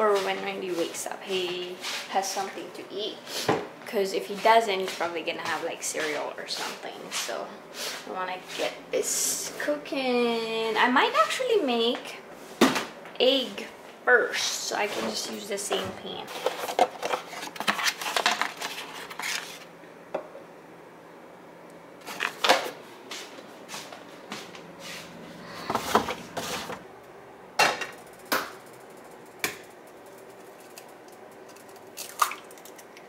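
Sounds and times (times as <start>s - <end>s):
egg cracked on pan rim: 31.5s - 32.8s.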